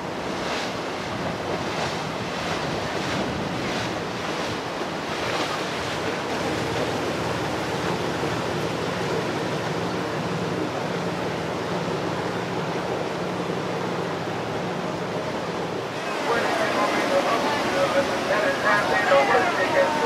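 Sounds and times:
wind on microphone: 0.0 - 6.8
low engine hum: 0.0 - 20.0
water rushing along hull: 0.0 - 20.0.

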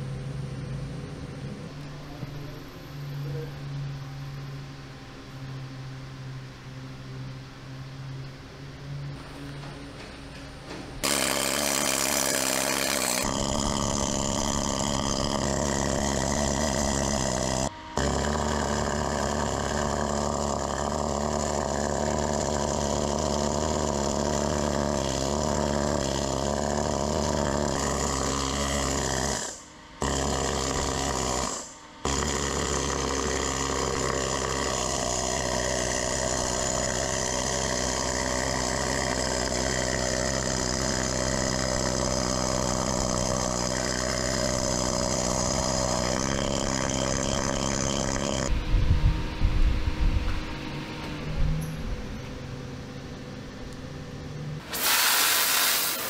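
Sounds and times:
air hammer chiseling steel: 11.0 - 38.3, 54.7 - 56.0.

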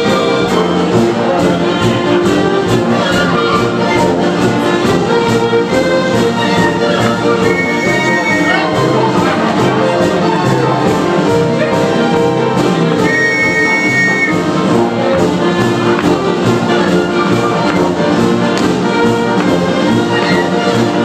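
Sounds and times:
ragtime band with brass and fiddle: 0.0 - 21.0
whistle blown: 7.4 - 8.8, 13.0 - 14.6.

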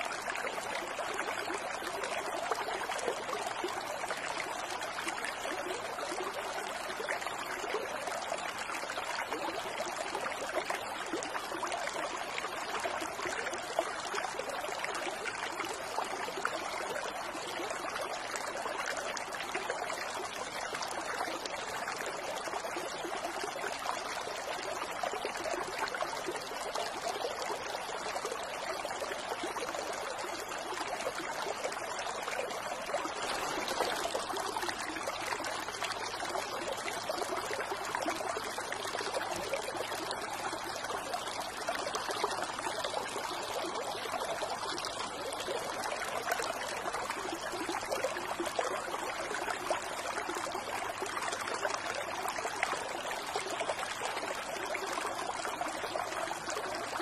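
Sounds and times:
water trickling into basin: 25.3 - 47.4.

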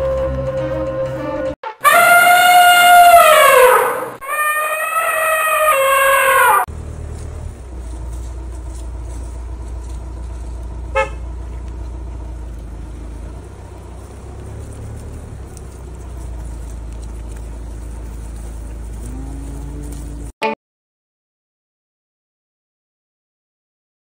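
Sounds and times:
car horn toot: 1.6 - 3.8, 10.8 - 11.5
car engine rumbling: 4.2 - 20.4.

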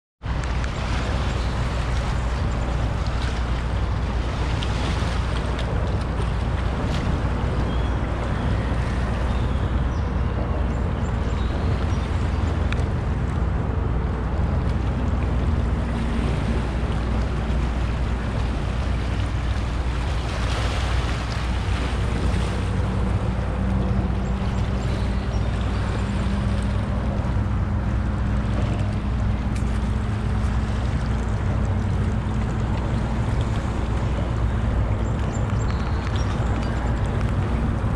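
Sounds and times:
low engine hum: 0.2 - 37.9
traffic rumble: 0.2 - 37.9
wind on microphone: 0.2 - 37.9
small waves washing over rocks: 15.0 - 37.9.

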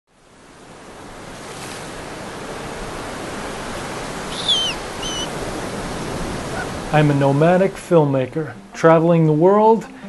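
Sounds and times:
ocean surf breaking: 0.2 - 8.1
high wavering whistle: 4.3 - 5.3.

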